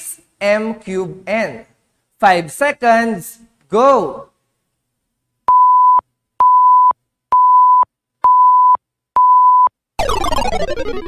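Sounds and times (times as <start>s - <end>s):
falling electronic sound effect: 10.0s - 11.0s.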